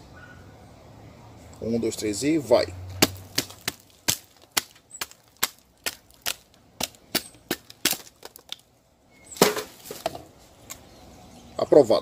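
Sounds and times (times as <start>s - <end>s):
machete knocking through wood: 3.0s - 8.6s, 9.4s - 10.3s.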